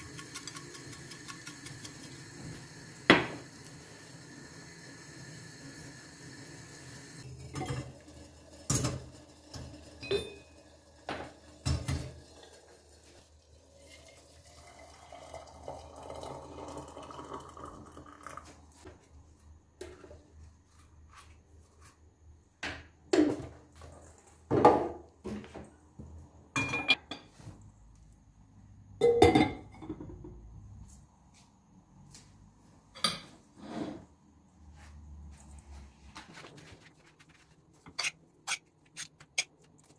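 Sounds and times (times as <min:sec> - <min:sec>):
crockery clinking and knocking: 0:26.6 - 0:27.4, 0:29.0 - 0:30.4.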